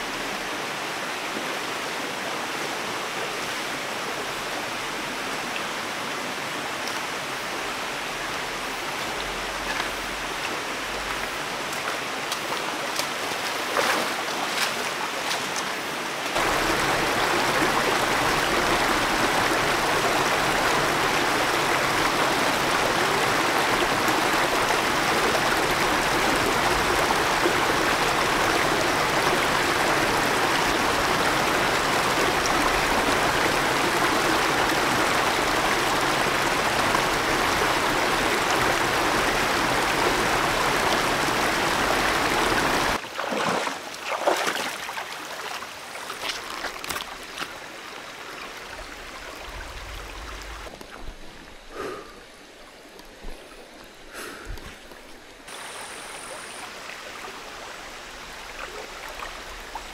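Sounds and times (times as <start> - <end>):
stream rushing over stones: 0.0 - 59.9
feet wading through water: 9.3 - 16.5, 43.0 - 47.7.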